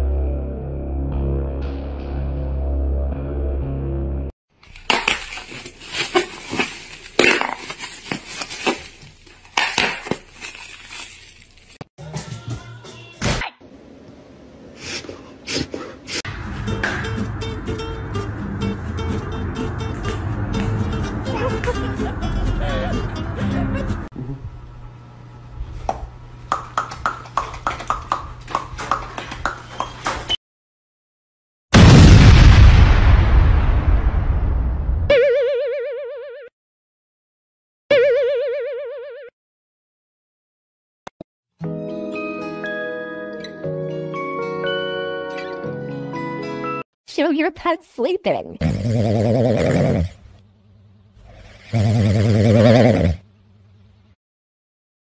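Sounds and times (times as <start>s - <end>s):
plastic bag crinkling: 4.6s - 11.8s.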